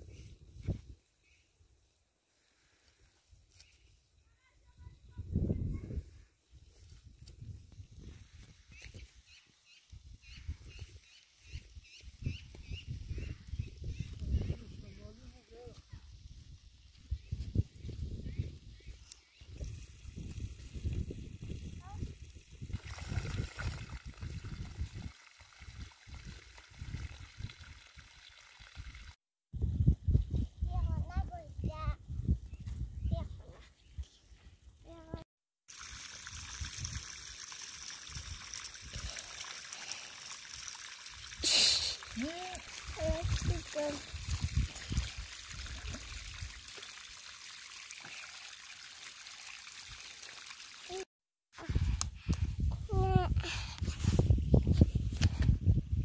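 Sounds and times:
water pouring into a pond: 19.3s - 29.2s, 35.7s - 51.1s.

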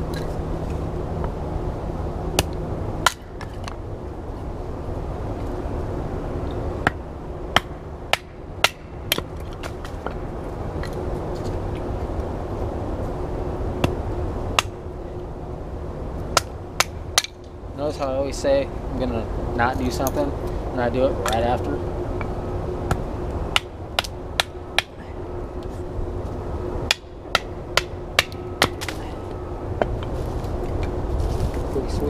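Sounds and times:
hatchet chopping wood: 2.4s - 3.6s, 6.8s - 10.2s, 14.6s - 14.8s, 16.3s - 17.4s, 22.9s - 25.0s, 26.8s - 29.0s.

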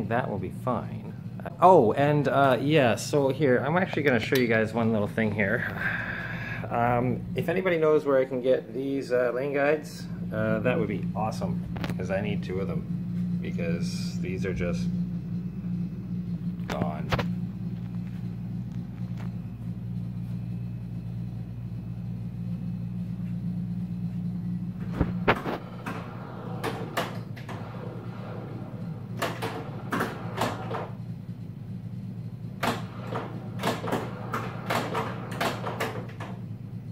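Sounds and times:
steady low hum: 0.0s - 36.9s
pinball flippers and ball clacking: 25.0s - 31.0s, 32.6s - 36.5s.

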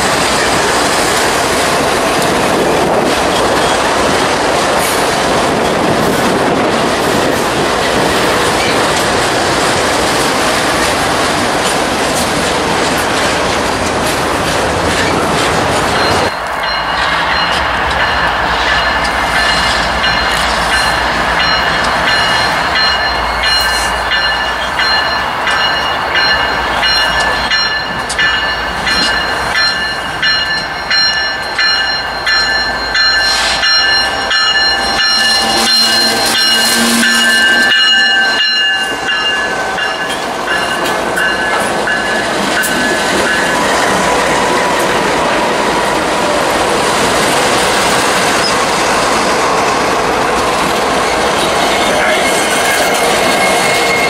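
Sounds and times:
freight train rolling past: 0.0s - 54.0s
high-pitched ringing tone: 18.8s - 42.2s.

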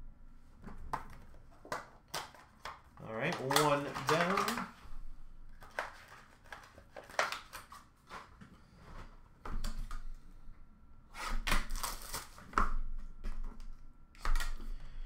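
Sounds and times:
handling trading cards and box: 0.6s - 4.8s, 5.5s - 8.4s.

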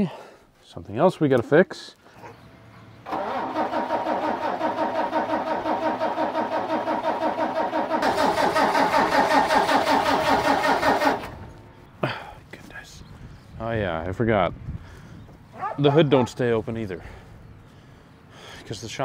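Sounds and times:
diesel engine cranking by starter: 3.0s - 11.7s.

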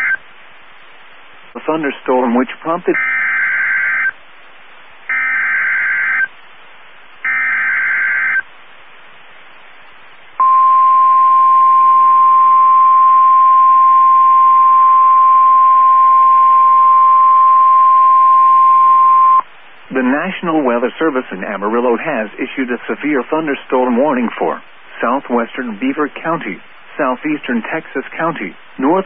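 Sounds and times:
single-pitch warning alarm tone: 7.2s - 8.4s, 10.4s - 19.4s.

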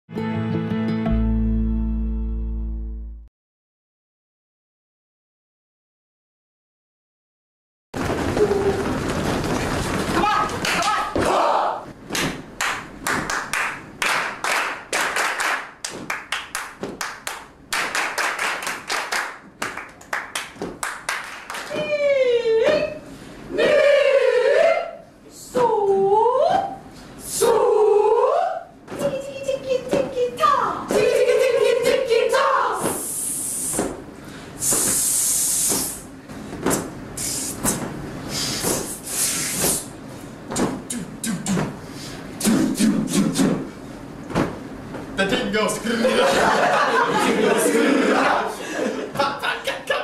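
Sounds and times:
group clapping in rhythm: 9.4s - 21.9s, 30.9s - 33.1s.

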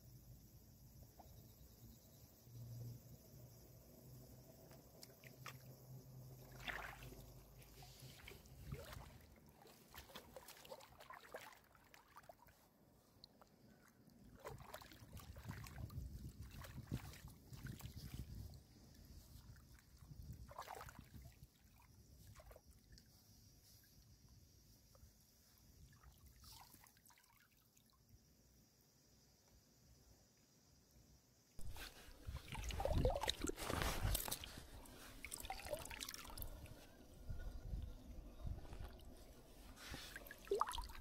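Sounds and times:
shallow water splashing: 6.4s - 12.5s, 14.3s - 18.0s, 20.5s - 21.3s, 31.6s - 37.6s, 38.7s - 41.0s.

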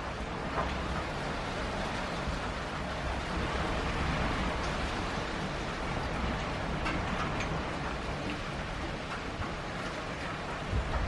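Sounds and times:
steady rainfall: 0.0s - 11.0s.

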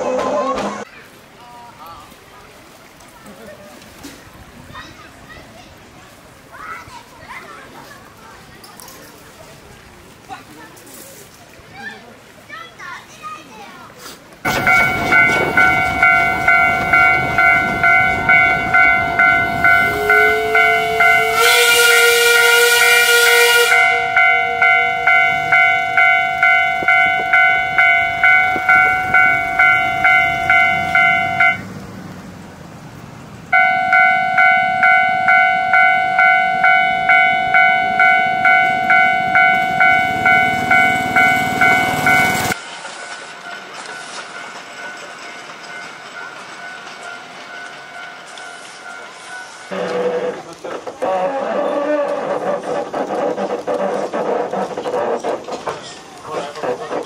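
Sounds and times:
steam locomotive whistle: 14.5s - 31.6s, 33.6s - 42.6s
level crossing warning bell: 14.5s - 31.7s, 33.5s - 50.4s.

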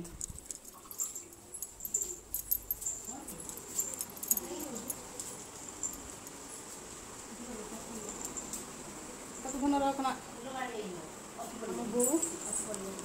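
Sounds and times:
bangles jingling: 0.2s - 6.6s, 12.0s - 12.7s.

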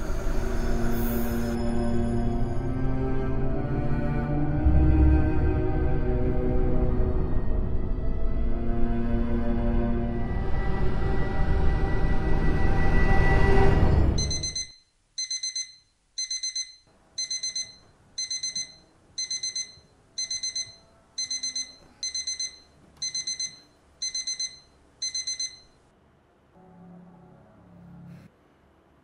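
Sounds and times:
smartphone alarm beeping: 14.2s - 25.8s.

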